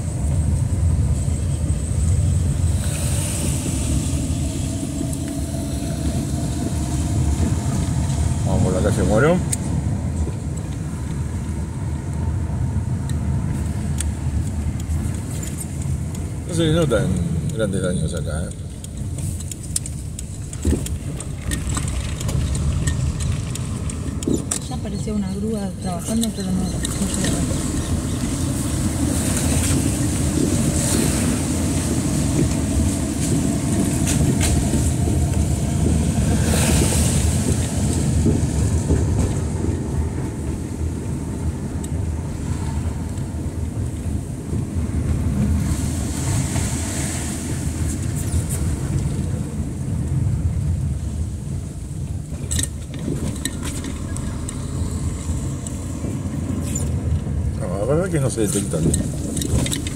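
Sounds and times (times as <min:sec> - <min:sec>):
car engine and road noise: 0:00.0 - 0:59.9
tyres hissing on wet pavement: 0:02.4 - 0:09.8, 0:45.4 - 0:49.8.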